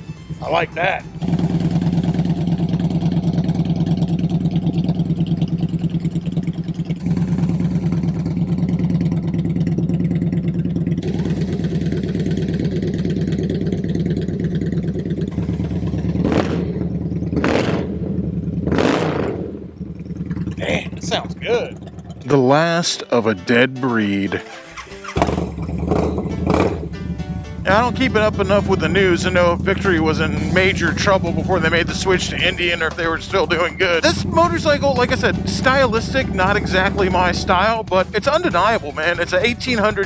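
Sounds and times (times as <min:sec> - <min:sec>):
motorcycle engine idling and revving: 0:00.0 - 0:23.0, 0:24.7 - 0:40.0.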